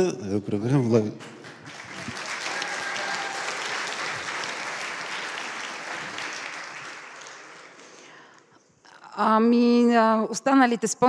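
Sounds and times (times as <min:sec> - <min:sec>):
audience applauding: 0:01.2 - 0:08.3.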